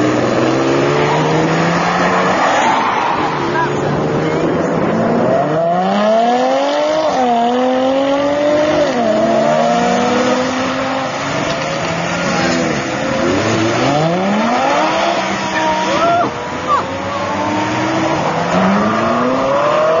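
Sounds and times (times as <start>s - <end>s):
car engine pulling away: 0.0s - 20.0s
sports car engines revving: 0.0s - 20.0s.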